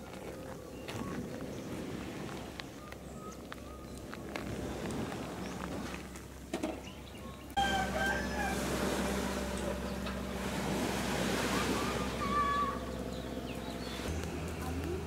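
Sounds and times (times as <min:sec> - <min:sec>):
steady low hum: 0:07.4 - 0:15.0
rooster crowing: 0:07.6 - 0:09.1.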